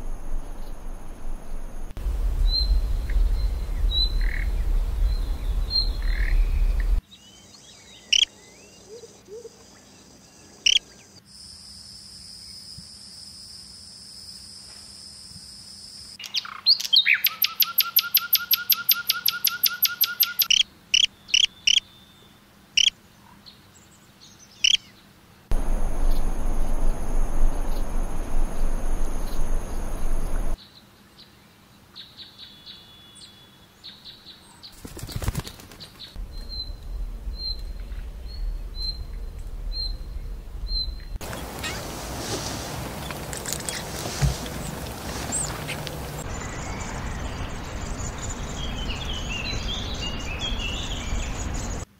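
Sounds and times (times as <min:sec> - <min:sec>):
steady hiss: 0:00.0 - 0:07.0, 0:25.5 - 0:30.6, 0:36.2 - 0:51.8
songbirds calling: 0:02.0 - 0:11.2, 0:16.2 - 0:51.9.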